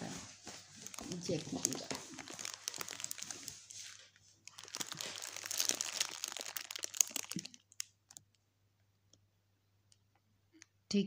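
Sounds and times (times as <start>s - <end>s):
cardboard and plastic crinkling: 0.2s - 8.3s.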